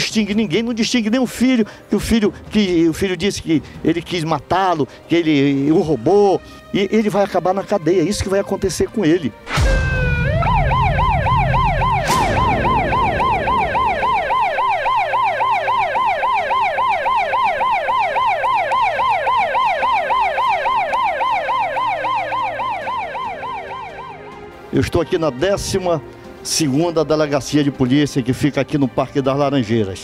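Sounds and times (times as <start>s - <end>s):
sharp hit: 9.5s - 15.5s
low rumble: 9.5s - 16.0s
siren yelping: 9.6s - 24.4s.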